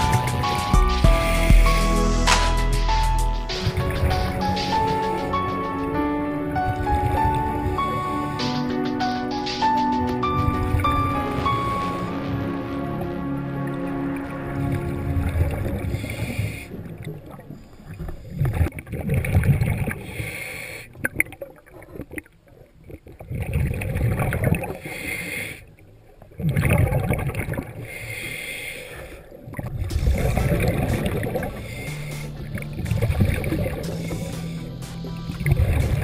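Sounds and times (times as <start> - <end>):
gurgling exhaled bubbles: 14.5 - 20.2, 22.9 - 24.9, 26.2 - 27.9, 29.4 - 36.0
regulator hiss on inhale: 20.1 - 20.9, 24.8 - 25.6, 27.8 - 29.3, 31.5 - 32.5, 33.9 - 35.1.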